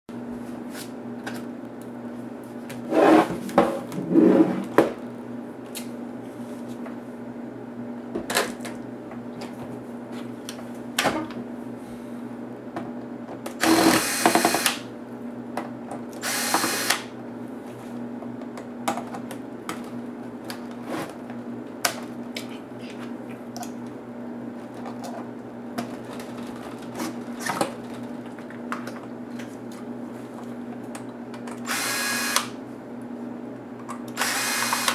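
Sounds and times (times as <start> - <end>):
cordless drill-driver running: 13.6 - 14.8, 16.2 - 17.1, 31.6 - 32.6, 34.2 - 34.9.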